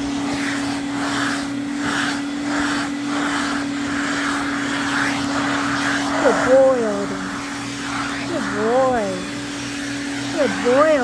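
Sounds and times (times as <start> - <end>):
brush drawn through dog fur: 0.0 - 11.0
vacuum cleaner running: 0.0 - 11.0.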